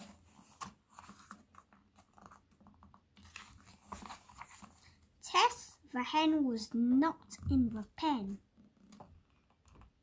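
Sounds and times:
paper pages rustling and clicking: 0.0 - 5.0.

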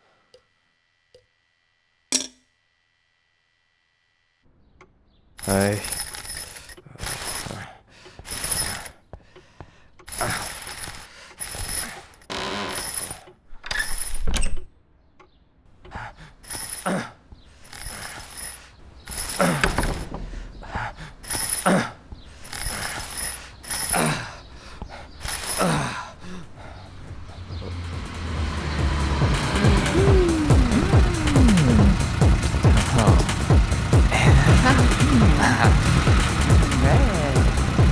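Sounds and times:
mechanical creaking and squeaking: 4.8 - 9.0, 10.0 - 15.4, 17.6 - 24.5, 25.1 - 26.0.

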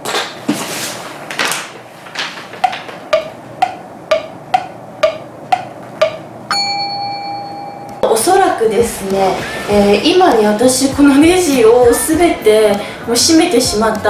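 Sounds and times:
wood-block knocks: 2.6 - 8.0
bell-like ding: 6.5 - 8.0.

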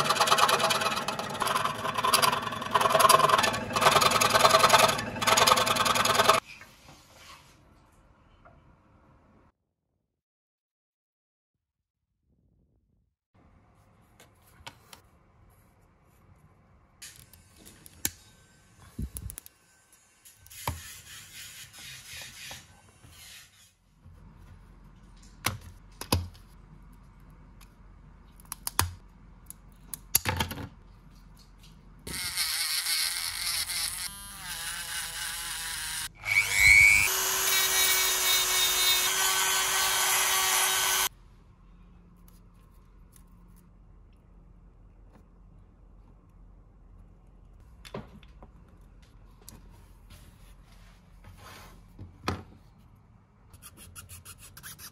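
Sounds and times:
rotary tool sanding: 0.0 - 6.4, 32.1 - 41.1.

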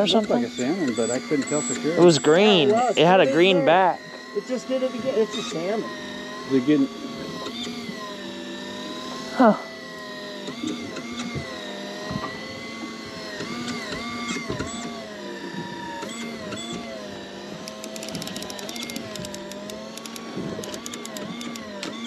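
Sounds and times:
fishing reel motor whining: 0.0 - 22.0
fast clicking: 17.6 - 22.0.

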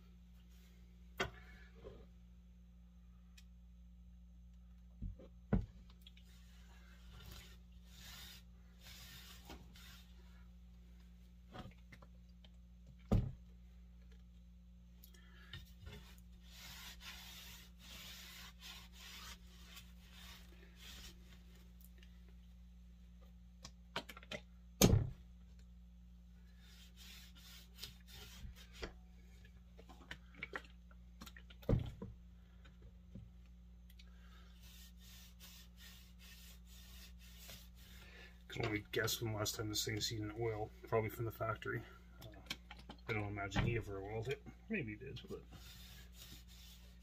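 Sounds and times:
rag rubbing wood: 16.0 - 21.3, 34.6 - 38.0, 45.4 - 47.0.

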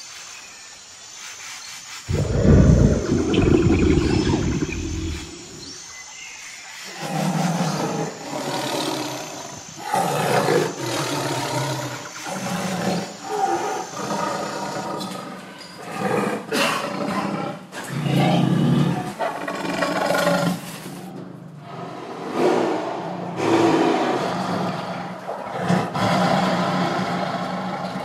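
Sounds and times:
lions roaring and growling: 2.1 - 5.8, 21.6 - 28.0.

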